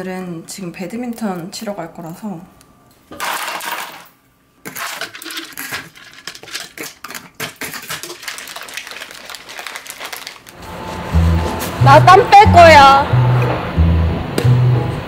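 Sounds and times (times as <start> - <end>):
small hard objects clattering: 3.2 - 10.6.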